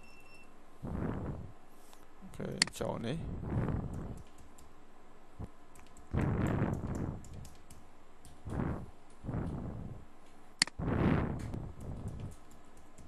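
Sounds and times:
keyboard typing: 5.8s - 8.4s, 11.7s - 13.0s.

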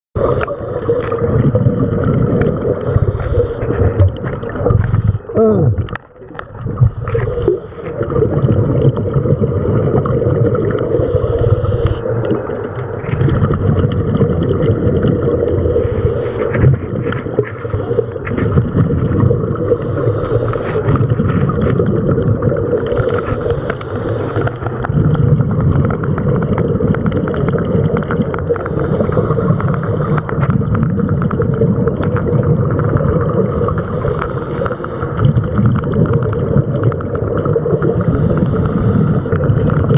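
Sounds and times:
underwater regulator breathing hiss: 0.2s - 1.2s, 2.8s - 3.9s, 10.8s - 12.1s, 15.4s - 16.7s, 17.5s - 18.4s, 19.6s - 21.0s, 22.8s - 24.8s, 28.5s - 30.4s, 33.4s - 35.2s, 37.8s - 39.5s.

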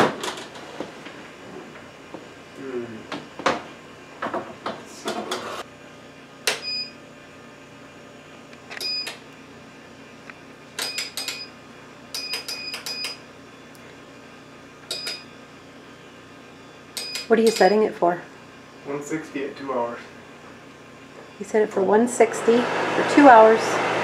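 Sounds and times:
control panel beeps: 6.6s - 7.0s, 8.8s - 9.2s, 10.8s - 11.5s, 12.2s - 13.2s, 14.9s - 15.3s, 17.0s - 17.8s.

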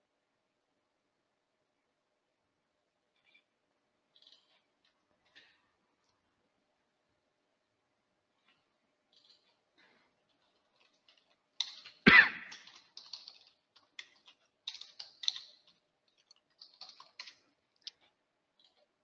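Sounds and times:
typing on keyboard: 10.3s - 18.9s.

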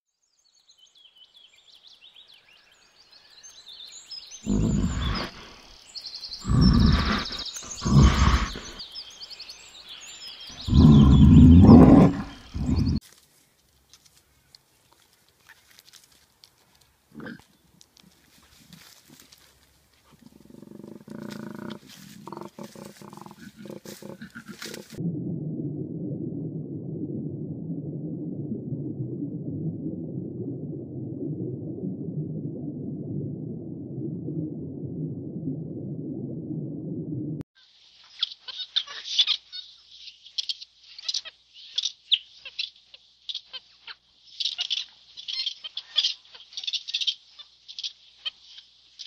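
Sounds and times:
small birds chirping: 0.3s - 13.0s, 38.0s - 49.0s
bear calling: 6.4s - 8.8s, 20.2s - 25.0s
muffled underwater rush of water: 10.6s - 13.0s, 23.8s - 37.4s.

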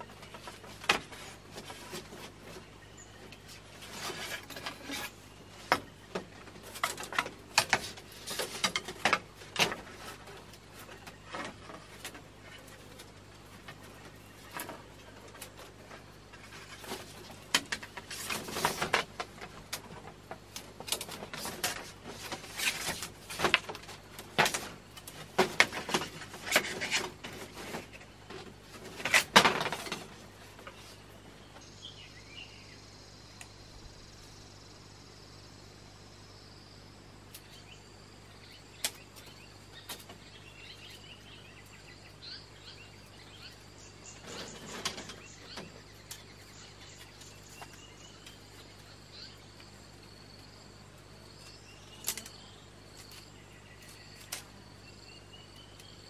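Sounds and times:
bamboo strips clicking and scraping: 0.0s - 31.1s, 38.8s - 40.2s, 52.0s - 54.6s.

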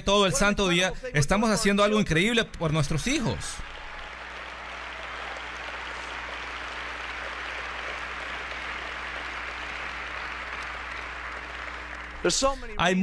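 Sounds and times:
audience applauding: 3.0s - 12.7s.

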